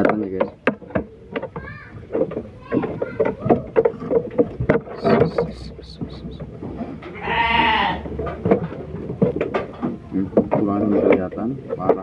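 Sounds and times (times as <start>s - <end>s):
sheep bleating: 7.1s - 8.1s.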